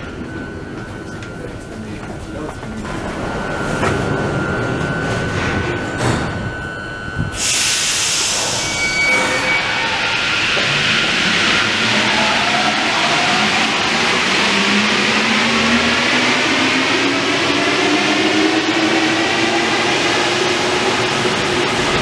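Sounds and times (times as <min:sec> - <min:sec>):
brief tone: 0:00.0 - 0:10.6
train motor whine rising: 0:03.1 - 0:22.0
hiss of air: 0:07.3 - 0:08.6.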